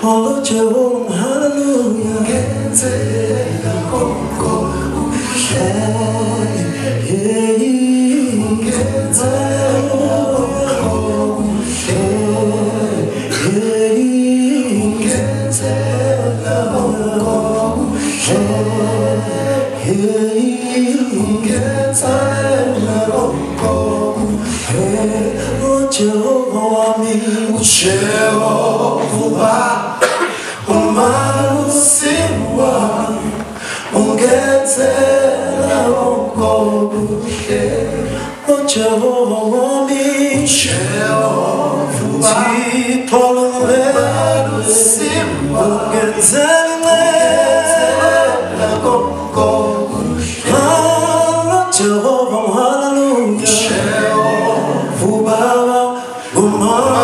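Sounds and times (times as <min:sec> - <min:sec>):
male group singing in harmony: 0:00.0 - 0:57.0.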